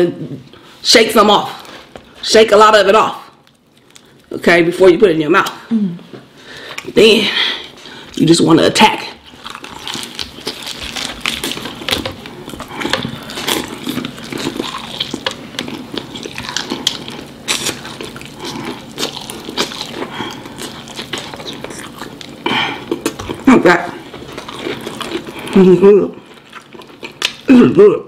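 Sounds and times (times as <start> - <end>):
fried chicken crunching: 9.3 - 27.5.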